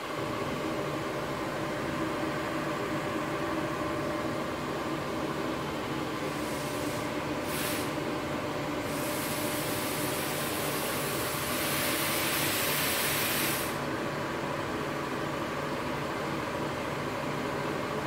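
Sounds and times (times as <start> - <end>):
gas hissing from welding torch: 6.3 - 8.0, 8.9 - 13.8.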